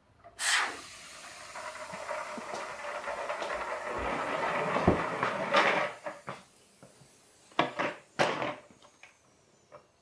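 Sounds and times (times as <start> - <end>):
compressed air hissing: 0.4 - 5.1, 5.7 - 10.0
toy car rolling on wooden floor: 1.2 - 6.5.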